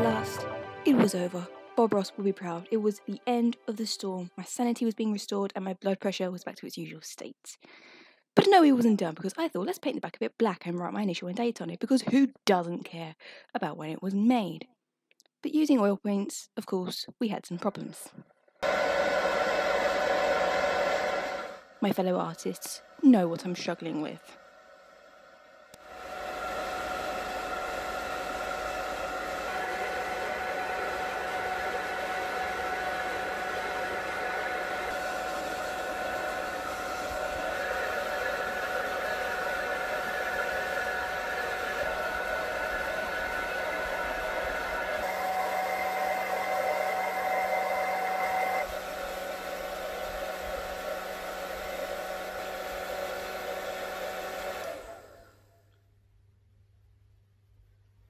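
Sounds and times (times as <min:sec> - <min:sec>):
hair dryer running: 0:00.0 - 0:01.7, 0:18.6 - 0:55.4.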